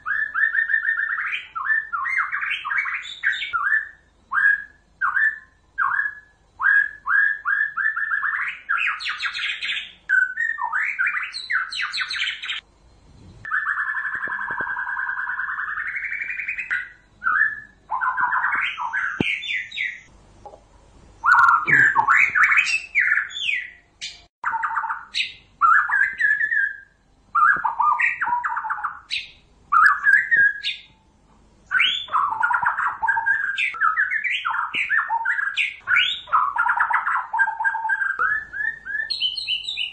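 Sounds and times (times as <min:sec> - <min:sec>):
bird singing whistled phrases: 0:00.0 - 0:12.6, 0:13.5 - 0:20.1, 0:21.2 - 0:31.0, 0:31.7 - 0:39.9
bird chattering calls: 0:21.2 - 0:23.5.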